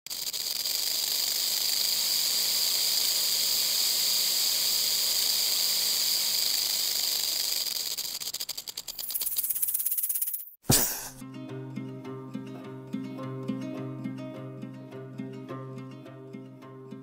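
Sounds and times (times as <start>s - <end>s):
rattlesnake rattle buzzing: 0.1s - 10.6s.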